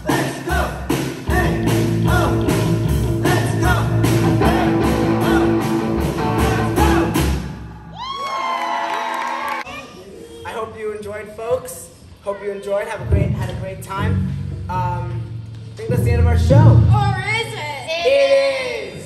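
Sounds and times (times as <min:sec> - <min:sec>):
drum kit beat: 0:00.0 - 0:08.0
electric guitars: 0:01.4 - 0:07.3.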